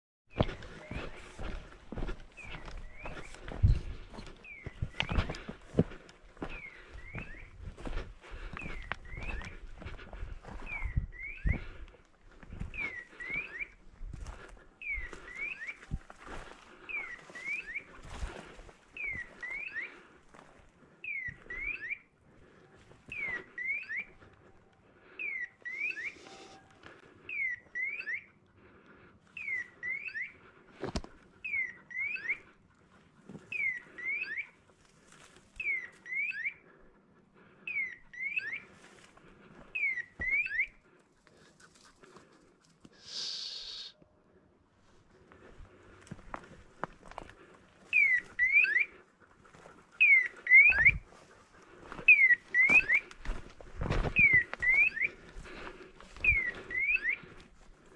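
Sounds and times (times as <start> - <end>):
footsteps on loose stones: 0.3 - 20.7, 45.4 - 48.4, 50.8 - 57.9.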